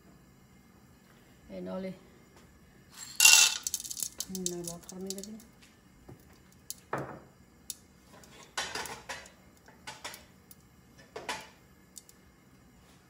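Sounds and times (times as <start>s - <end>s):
sugar crystals clinking in a wok: 2.9s - 5.5s, 7.6s - 12.2s.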